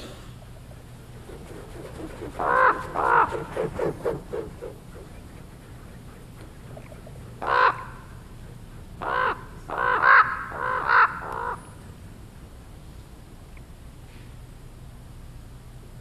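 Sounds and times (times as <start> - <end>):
ravens cawing: 2.4 - 3.5, 7.4 - 8.4, 9.0 - 11.8.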